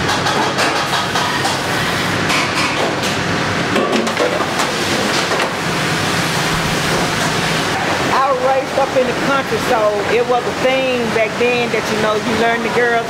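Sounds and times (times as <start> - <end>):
fan humming: 0.0 - 13.0.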